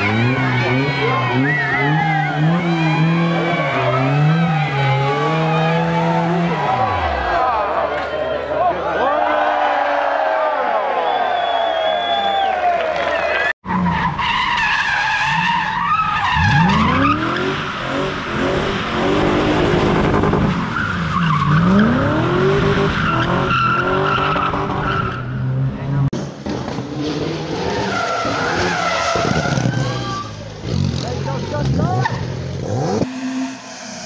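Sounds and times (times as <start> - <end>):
car engine revving: 0.0 - 7.8, 16.3 - 34.0
tyres squealing and skidding: 0.0 - 8.4, 11.1 - 34.0.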